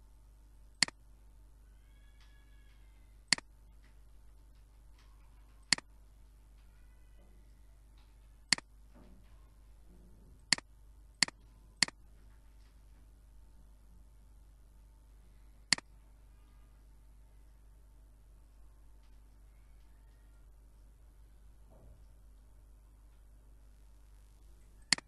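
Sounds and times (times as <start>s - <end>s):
computer mouse clicks: 5.0s - 5.9s.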